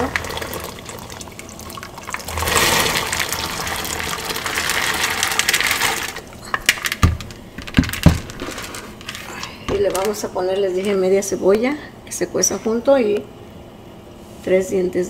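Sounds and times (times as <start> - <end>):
beans splashing into boiling water: 0.0 - 9.2.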